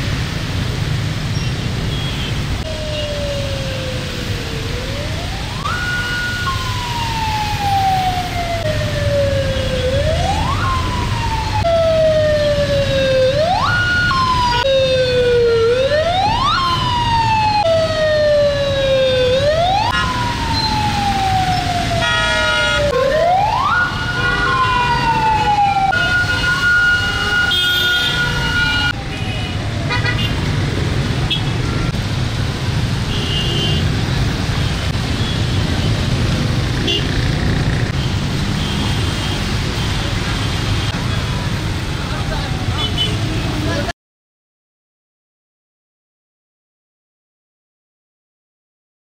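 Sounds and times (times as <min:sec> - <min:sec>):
traffic rumble: 0:00.0 - 0:43.9
emergency siren wailing: 0:02.6 - 0:33.1
vehicle horn: 0:22.0 - 0:22.8, 0:27.1 - 0:28.3, 0:29.1 - 0:30.4, 0:33.1 - 0:33.9.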